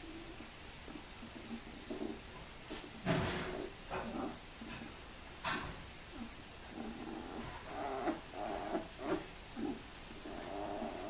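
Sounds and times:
puppies grunting and whimpering: 6.7s - 11.0s.

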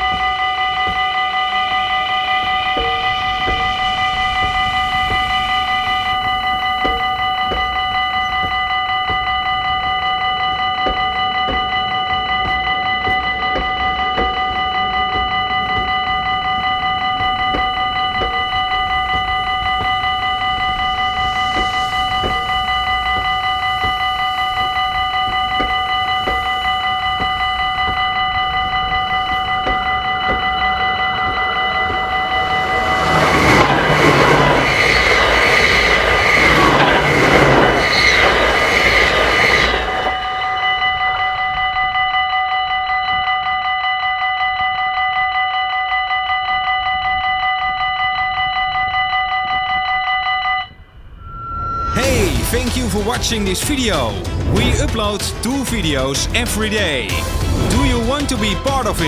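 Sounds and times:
train wheel knocks: 0.0s - 40.4s
train passing at speed: 0.0s - 41.8s, 50.9s - 59.0s
level crossing bell ringing: 0.0s - 50.8s.

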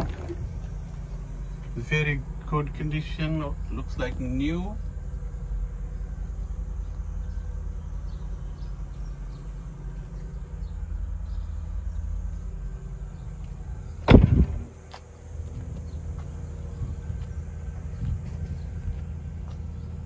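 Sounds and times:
low rumble: 0.0s - 20.0s
heavy door thump: 14.0s - 14.7s.

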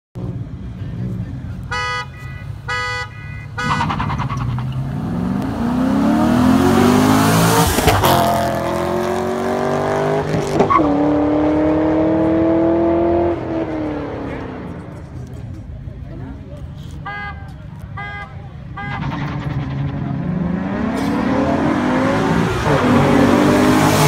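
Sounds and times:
car horn toot: 1.6s - 4.2s, 16.9s - 19.5s
car engines accelerating hard: 3.6s - 16.8s, 18.8s - 24.0s.

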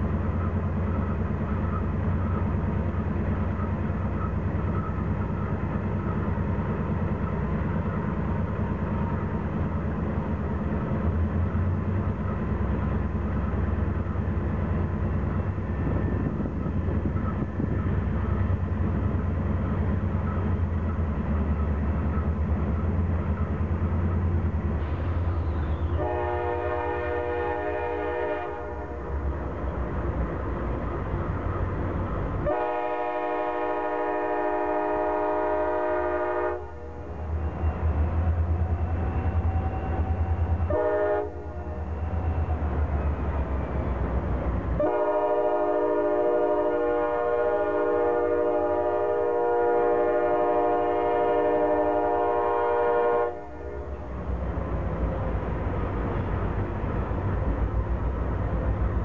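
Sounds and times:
diesel locomotive rumbling: 0.0s - 59.0s
locomotive air horn chord: 25.9s - 29.2s, 32.4s - 37.2s, 39.2s - 41.8s, 44.8s - 54.0s.

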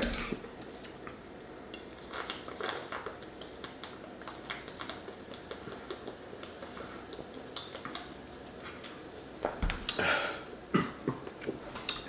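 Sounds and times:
person gulping: 0.0s - 0.5s.

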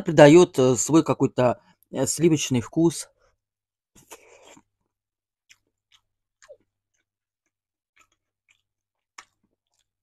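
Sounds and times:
wet chewing: 4.0s - 10.0s.

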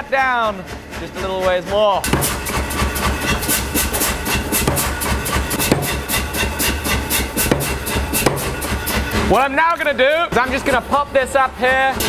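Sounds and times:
power hammer striking steel: 2.0s - 9.9s.

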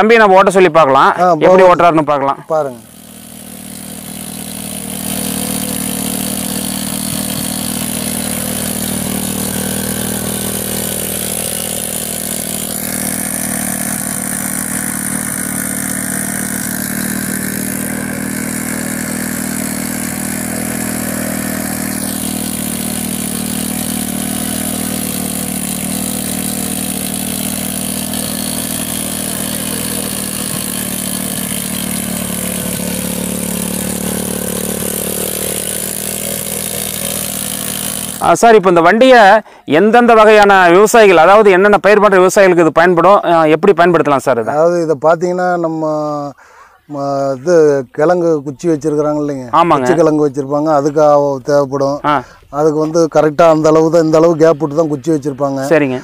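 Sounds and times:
motorcycle engine running: 2.4s - 39.6s
plough through dry soil: 2.8s - 38.4s.

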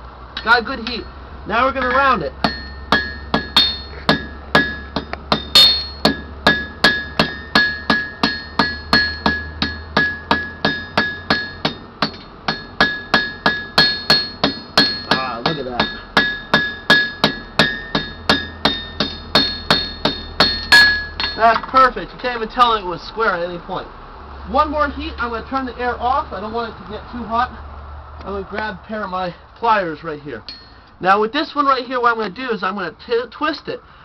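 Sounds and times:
hammer striking steel on anvil: 1.8s - 21.7s, 30.5s - 30.9s.

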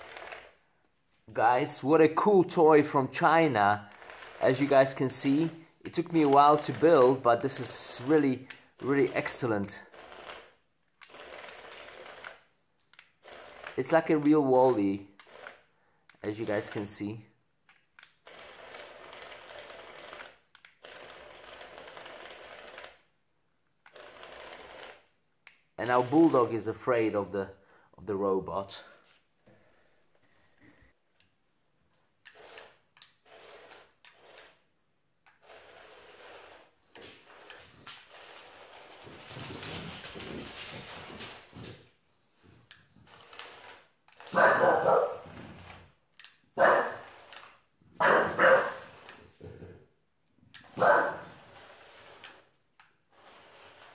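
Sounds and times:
small electric gear motors: 0.0s - 0.6s, 3.9s - 15.7s, 18.0s - 23.0s, 23.8s - 25.1s, 25.8s - 26.6s, 32.2s - 39.6s, 42.7s - 47.7s, 48.3s - 49.4s, 50.5s - 53.9s
person talking: 1.2s - 9.9s, 13.8s - 15.2s, 16.2s - 17.4s, 25.8s - 29.0s
dog barking: 44.3s - 45.2s, 46.6s - 47.0s, 48.0s - 48.8s, 50.8s - 51.3s.

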